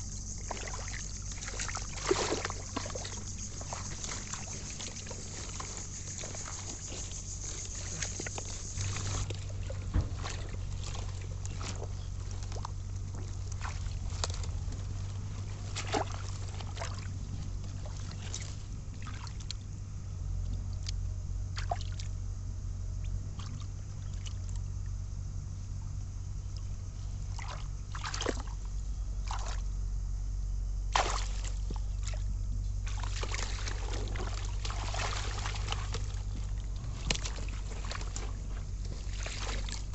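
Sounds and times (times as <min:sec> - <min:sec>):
steady low hum: 0:00.0 - 0:39.9
hands splashing in muddy water: 0:00.4 - 0:17.2, 0:27.3 - 0:28.6, 0:29.2 - 0:29.6, 0:30.9 - 0:32.2, 0:32.9 - 0:39.9.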